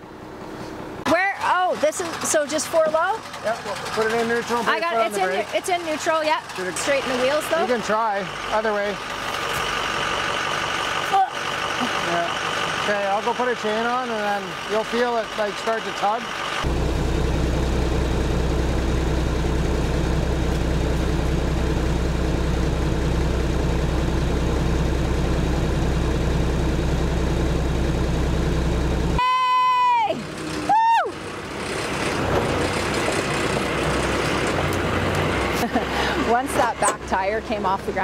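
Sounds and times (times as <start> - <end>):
truck engines droning under load: 0.0 - 38.0.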